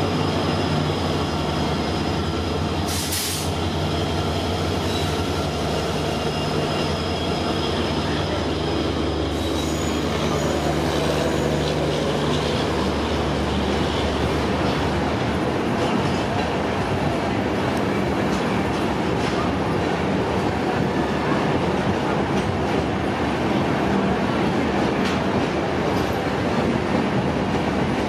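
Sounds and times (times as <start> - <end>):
locomotive engine hum: 0.0 - 26.3
train wheels on rails: 0.0 - 28.0
brief hiss: 2.9 - 3.6
wheel squeal: 9.2 - 12.6.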